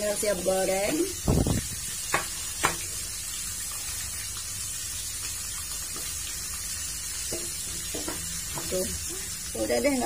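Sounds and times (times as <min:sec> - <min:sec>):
fish sizzling in oil: 0:00.0 - 0:10.0
pot and cutting board knocks: 0:02.1 - 0:02.9, 0:07.3 - 0:08.8.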